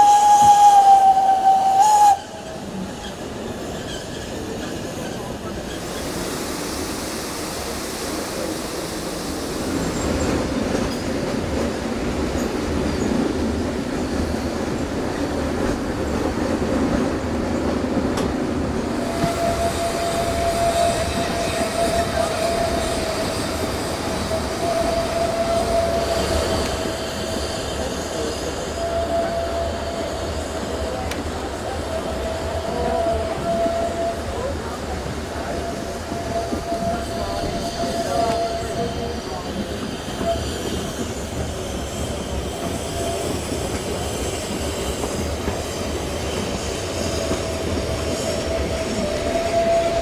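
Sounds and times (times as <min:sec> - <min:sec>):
train wheels rumbling: 0:00.0 - 0:50.0
high-pitched wheel squeal: 0:35.4 - 0:41.1, 0:47.2 - 0:50.0.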